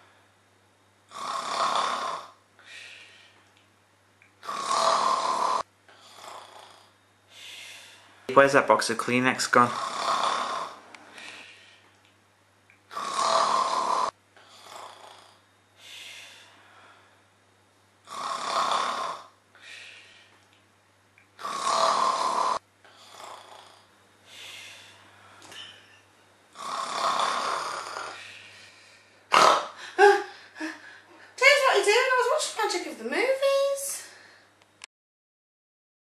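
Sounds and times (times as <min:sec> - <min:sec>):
person snoring heavily: 0:01.1 - 0:02.4, 0:04.4 - 0:06.9, 0:09.7 - 0:10.8, 0:12.9 - 0:15.4, 0:18.1 - 0:19.4, 0:21.4 - 0:23.9, 0:26.6 - 0:28.5
faint breaths: 0:02.6 - 0:03.6, 0:05.9 - 0:08.3, 0:10.3 - 0:12.0, 0:13.7 - 0:17.4, 0:19.5 - 0:20.5, 0:22.4 - 0:25.9, 0:27.1 - 0:31.4, 0:34.0 - 0:34.6.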